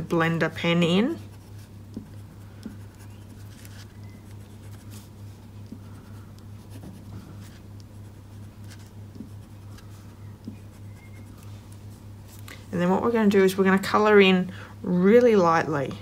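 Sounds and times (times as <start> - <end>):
steady low hum: 0.0 - 16.0
pencil scratching on card: 6.0 - 11.4.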